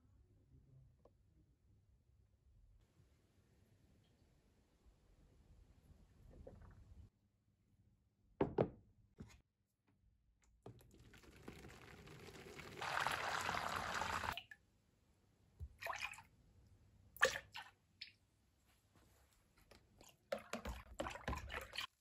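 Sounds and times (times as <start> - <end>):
water pouring into tub: 10.7 - 14.5
splashes and drips: 10.8 - 14.6, 15.7 - 16.3, 17.2 - 18.2, 20.0 - 22.0.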